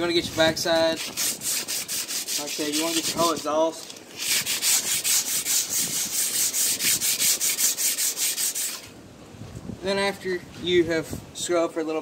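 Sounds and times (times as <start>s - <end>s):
sandpaper scrubbing metal: 0.0s - 8.9s.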